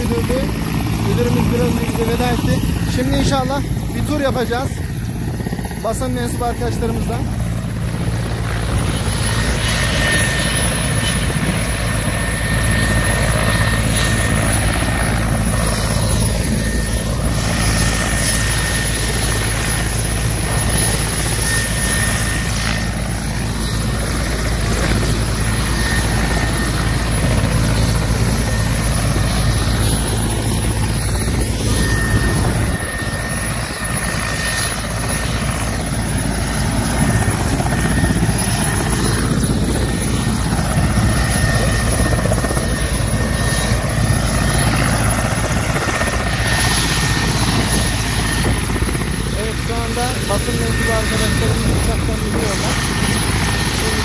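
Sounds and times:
helicopter rotor drone: 0:00.0 - 0:54.0
turbine whine: 0:00.0 - 0:54.0.

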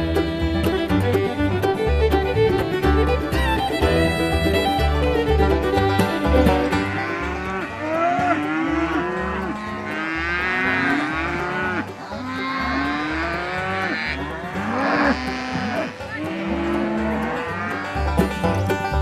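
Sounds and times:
cattle mooing: 0:06.8 - 0:18.3.

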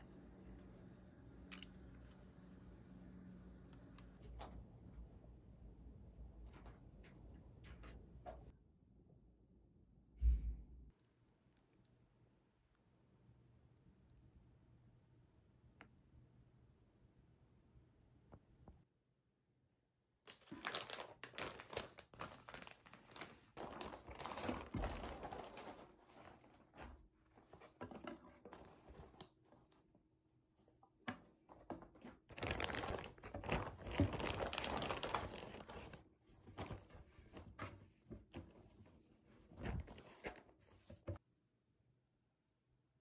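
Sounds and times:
plastic garment bags crinkling: 0:20.3 - 0:26.8, 0:31.6 - 0:37.5.

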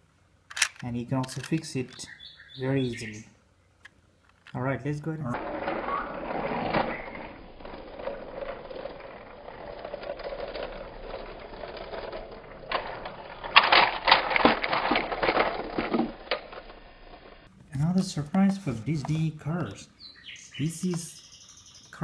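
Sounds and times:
toy train crash clatter: 0:05.4 - 0:17.3
toy train whirring on plastic track: 0:05.4 - 0:17.4.

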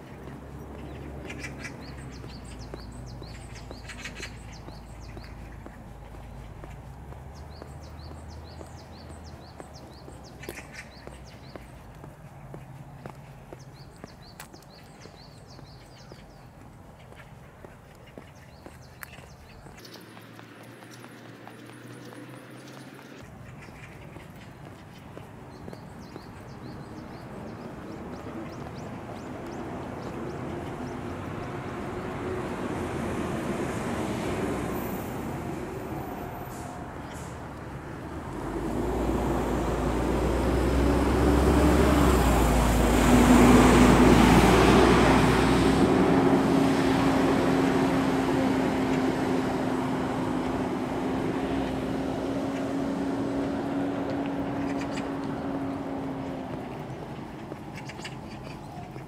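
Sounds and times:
heavy vehicle passing: 0:00.0 - 0:59.0
steady engine hum: 0:00.0 - 0:59.0.

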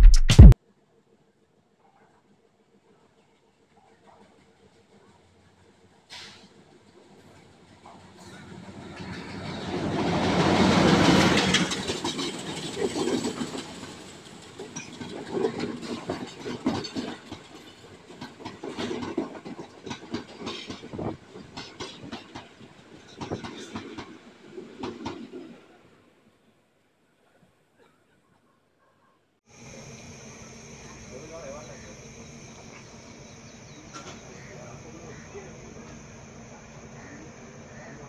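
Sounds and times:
diesel locomotive passing: 0:04.8 - 0:16.6, 0:29.5 - 0:38.0
wheels clacking over rail joints: 0:07.9 - 0:25.4, 0:31.1 - 0:38.0.

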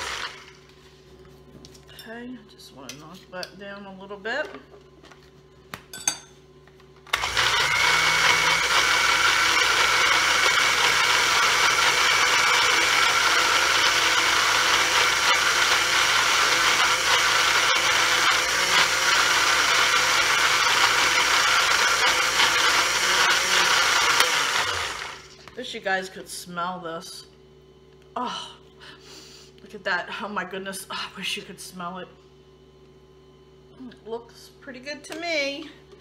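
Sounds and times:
blender running: 0:00.0 - 0:00.8, 0:07.0 - 0:25.6.

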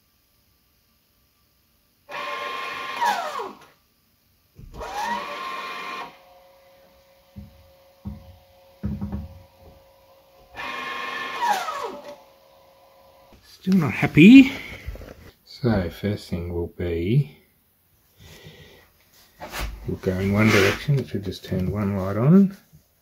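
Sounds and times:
small electric motor whirring: 0:02.1 - 0:03.7, 0:04.8 - 0:06.7, 0:10.5 - 0:13.2
soft knocks: 0:07.4 - 0:09.4
faint steady hum: 0:11.9 - 0:23.0.

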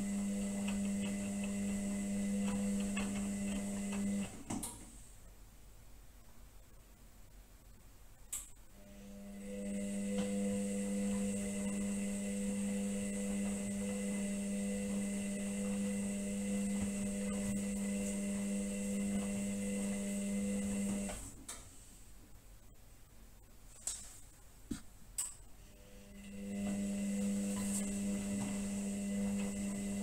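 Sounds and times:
washing machine motor humming: 0:00.0 - 0:04.5, 0:08.8 - 0:21.4, 0:25.7 - 0:30.0.

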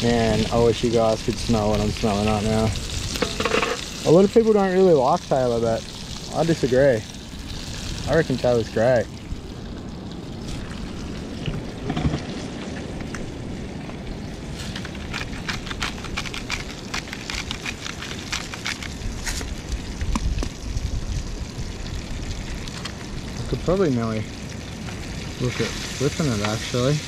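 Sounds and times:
fish sizzling in oil: 0:00.0 - 0:27.0
crackling oil pops: 0:14.8 - 0:20.6.

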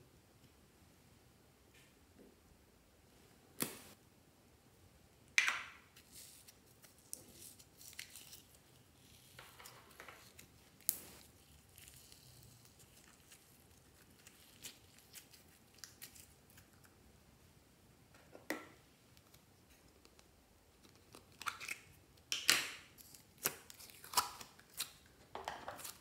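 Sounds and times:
slime crackling and squishing: 0:10.2 - 0:16.8.

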